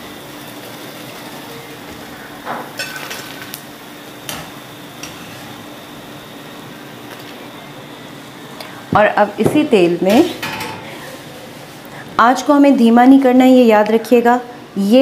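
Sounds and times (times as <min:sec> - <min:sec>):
hot oil sizzling: 0:00.0 - 0:08.6.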